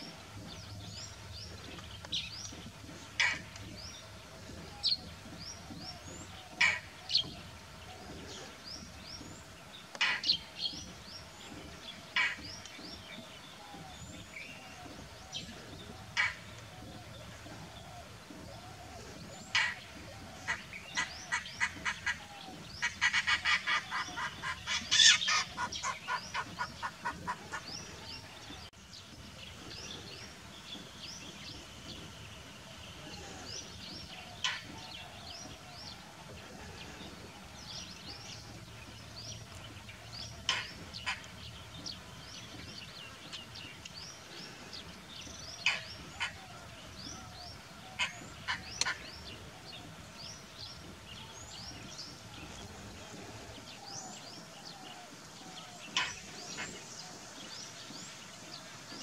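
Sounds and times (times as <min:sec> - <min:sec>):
bird harsh repeated calls: 0:02.5 - 0:07.8, 0:10.0 - 0:10.5, 0:12.1 - 0:12.8, 0:16.0 - 0:17.4, 0:18.1 - 0:28.2, 0:40.3 - 0:41.5, 0:45.6 - 0:46.5, 0:47.1 - 0:50.0, 0:55.9 - 0:56.8.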